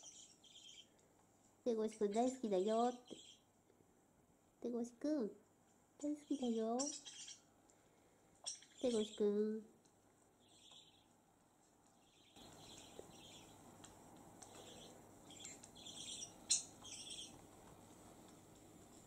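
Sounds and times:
budgerigar soft chirps: 14.5s - 17.4s.

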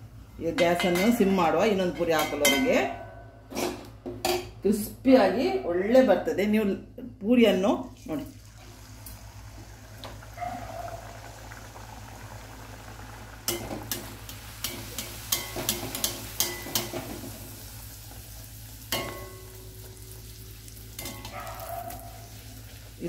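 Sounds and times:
oil sizzling: 7.9s - 23.0s.

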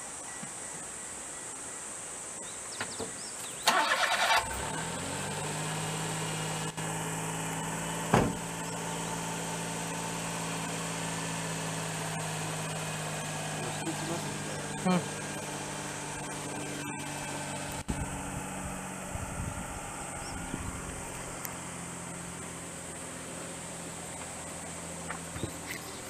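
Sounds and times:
truck engine idling: 3.1s - 26.0s
engine starter cranking: 3.6s - 4.8s
cab door shutting: 8.1s - 8.5s.

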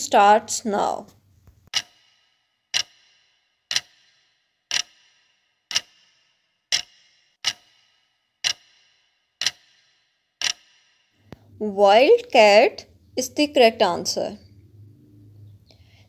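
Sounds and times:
clock ticking: 1.6s - 12.4s.

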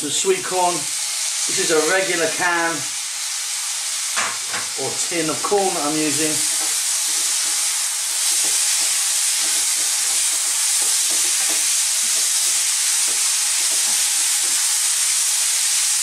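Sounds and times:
vegetables sizzling in a frying pan: 0.0s - 16.0s.

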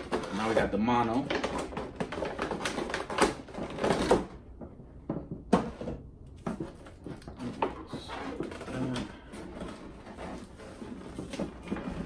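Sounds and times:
plastic crinkling: 0.0s - 4.4s
plastic packaging clicks and knocks: 0.0s - 9.9s.

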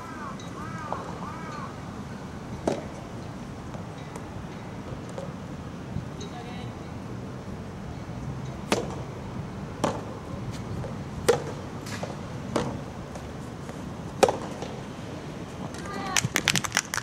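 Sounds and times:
rackets hitting tennis ball: 8.6s - 9.1s, 9.8s - 13.3s, 14.2s - 14.8s.

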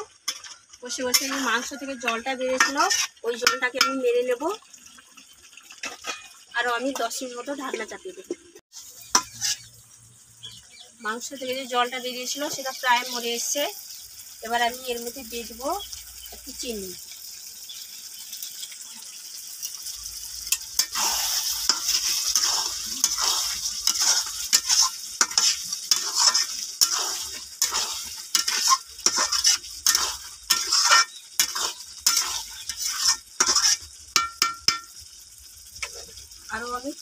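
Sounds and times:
metal spatula scraping pan: 0.0s - 4.1s, 5.8s - 6.4s, 8.4s - 9.8s, 20.4s - 34.9s
meat sizzling in a metal pan: 0.0s - 37.0s.

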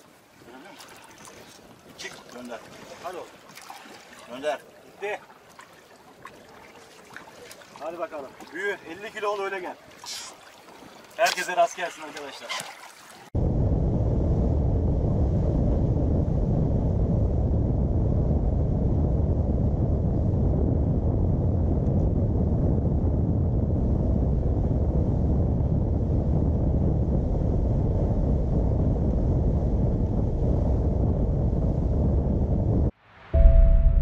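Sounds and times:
wind buffeting microphone: 13.3s - 34.0s.

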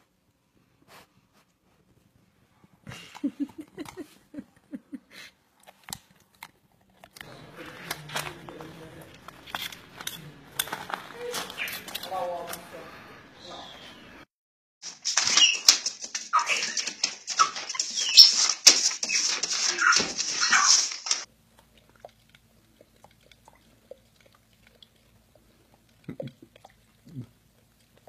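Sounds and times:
animal whining and yelping: 15.3s - 21.2s.

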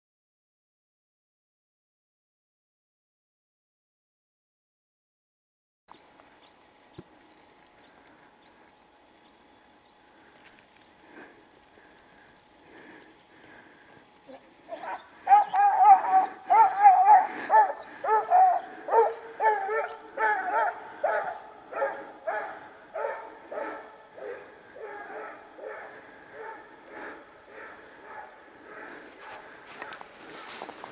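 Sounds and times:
hound baying: 14.3s - 30.6s.

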